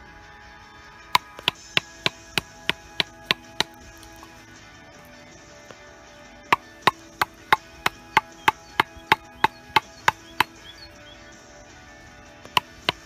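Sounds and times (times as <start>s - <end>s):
wooden baton knocking on knife: 1.2s - 3.8s, 12.6s - 13.0s.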